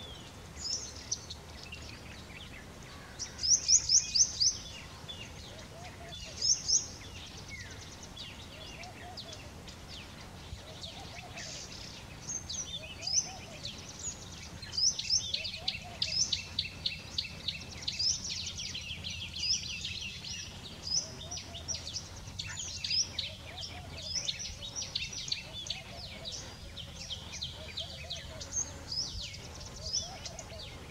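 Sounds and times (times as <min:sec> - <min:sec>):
fainter lower bird calls: 0:00.0 - 0:30.9
small birds chirping: 0:00.0 - 0:30.9.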